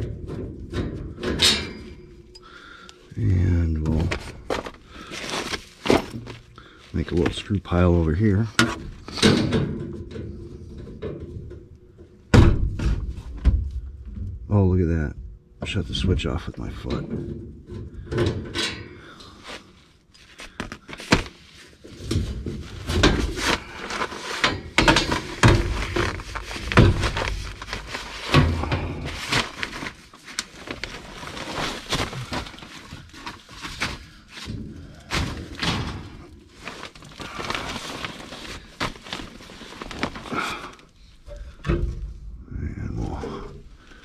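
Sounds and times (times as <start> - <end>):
sheet metal panel knocks and clattering: 0.0 - 2.2, 8.6 - 11.7, 12.3 - 14.4, 16.9 - 18.8, 22.0 - 23.6, 24.4 - 29.1.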